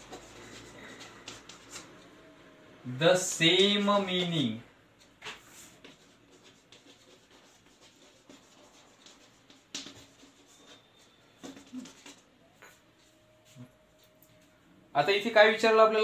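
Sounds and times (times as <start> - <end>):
chalk tapping on blackboard: 0.0 - 2.0, 5.2 - 10.8
chalk scratching on blackboard: 0.0 - 2.1, 5.2 - 12.3.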